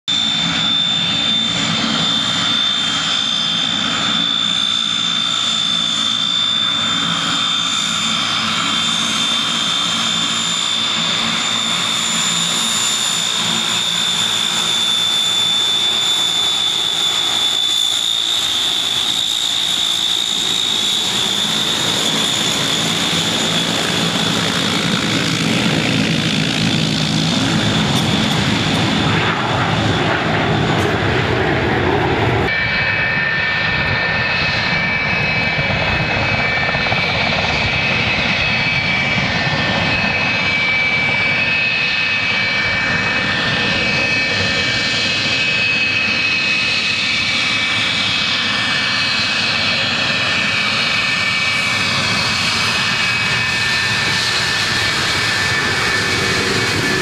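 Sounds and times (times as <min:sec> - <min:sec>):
jet engines whining: 0:00.1 - 0:57.0
turboprop plane taxiing: 0:00.1 - 0:57.0.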